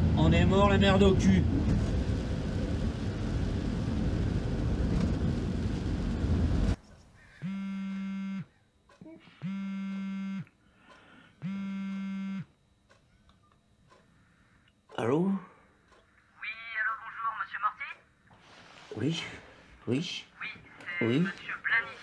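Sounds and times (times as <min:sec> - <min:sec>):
van engine and road noise: 0:00.0 - 0:06.8
mobile phone ringing: 0:07.4 - 0:08.5, 0:09.4 - 0:10.5, 0:11.4 - 0:12.5.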